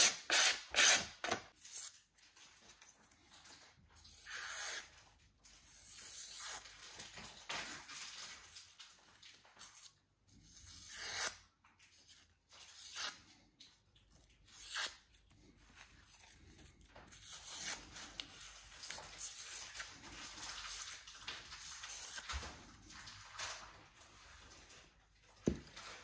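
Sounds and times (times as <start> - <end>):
knife slicing paper: 9.6 - 13.2, 17.1 - 22.3.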